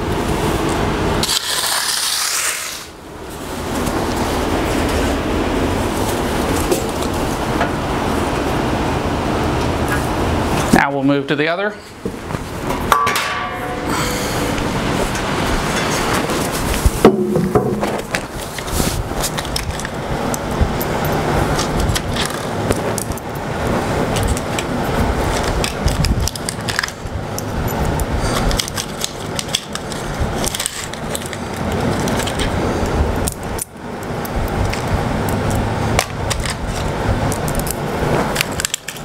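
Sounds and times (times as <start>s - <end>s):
steady background noise: 0.0s - 39.0s.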